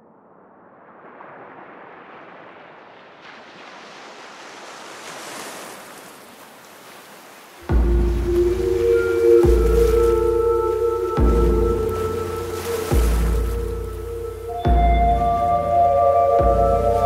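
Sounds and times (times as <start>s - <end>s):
rising filtered noise sweep: 0.0s - 2.9s.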